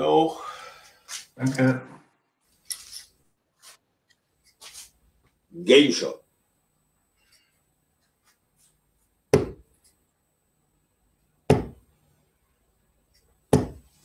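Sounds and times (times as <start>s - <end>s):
darts thudding into dartboard: 9.3s - 9.6s, 11.5s - 11.8s, 13.5s - 13.9s.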